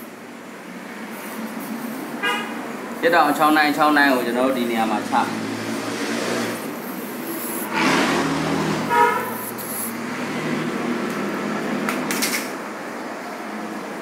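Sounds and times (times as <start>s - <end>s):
steady background noise: 0.0s - 14.0s
vehicle passing: 1.8s - 13.9s
short horn toot: 8.8s - 9.4s.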